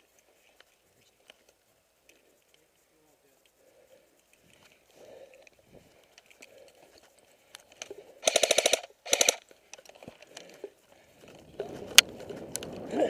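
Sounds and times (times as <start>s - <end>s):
rustling movement: 0.0s - 13.0s
airsoft gun full-auto bursts: 8.2s - 9.5s.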